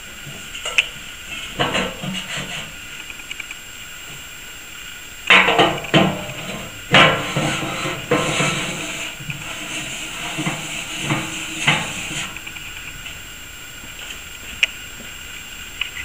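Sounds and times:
metallic knocks and scrapes: 0.6s - 2.8s, 5.3s - 13.2s.

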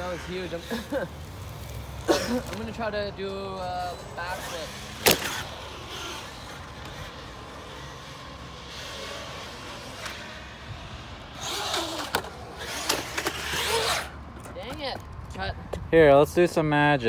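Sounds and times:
electric motor revving: 4.1s - 14.1s
tyre noise on concrete: 4.2s - 16.0s.

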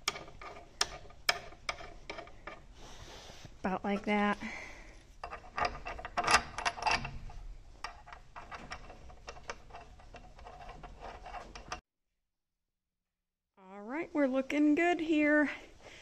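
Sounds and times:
metal bolt and washer clinking: 0.0s - 2.6s, 5.2s - 11.8s.

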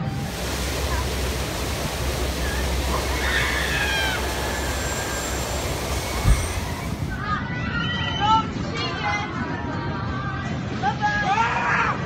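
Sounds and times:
steady rushing noise: 0.0s - 7.4s
distant riders screaming: 0.4s - 7.2s.

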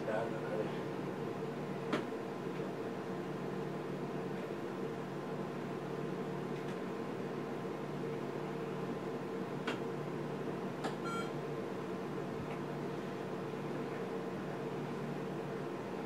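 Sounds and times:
ultrasound scanner hum: 0.0s - 16.0s
brief electronic beep: 11.0s - 11.3s.

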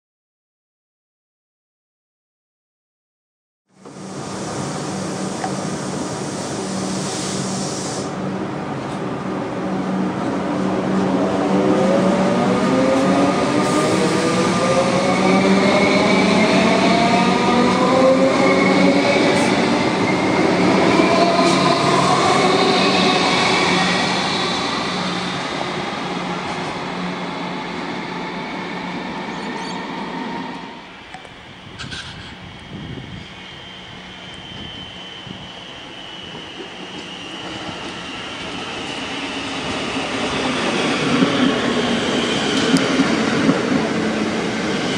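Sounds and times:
electric train pulling away: 3.8s - 44.9s
hiss: 4.0s - 8.2s.

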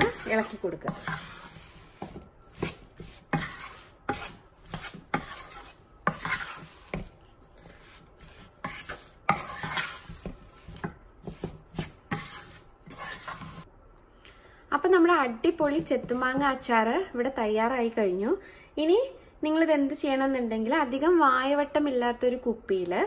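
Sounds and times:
spatula scraping pot: 0.0s - 13.7s.

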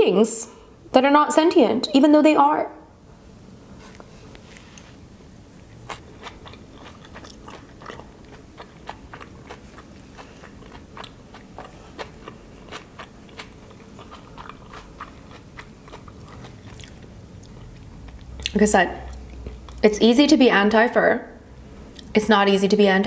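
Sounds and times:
chewing noodles: 5.5s - 19.8s.

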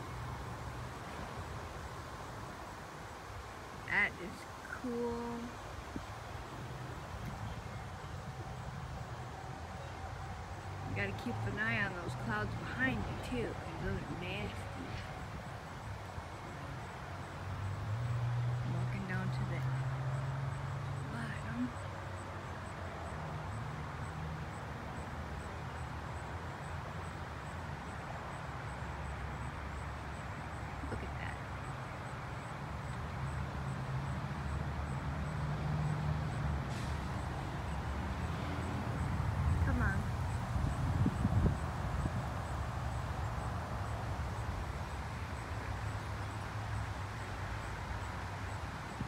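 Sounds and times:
wind buffeting microphone: 39.1s - 42.5s.

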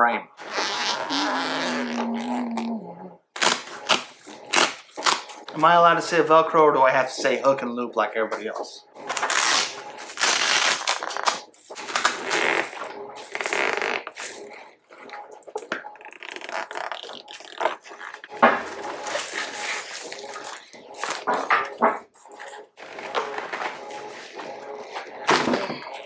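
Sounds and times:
velcro strips tearing apart: 3.4s - 5.3s, 9.2s - 12.6s.

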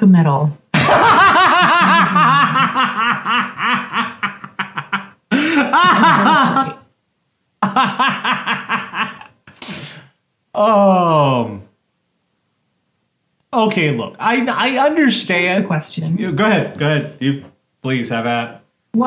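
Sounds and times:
man laughing hard: 0.8s - 6.8s, 7.6s - 9.4s.

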